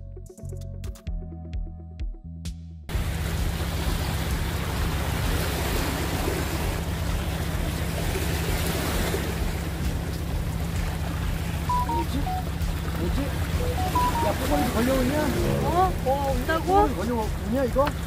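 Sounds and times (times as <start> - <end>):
waves breaking on rocks: 3.0 - 11.6
short high notes: 13.6 - 16.1.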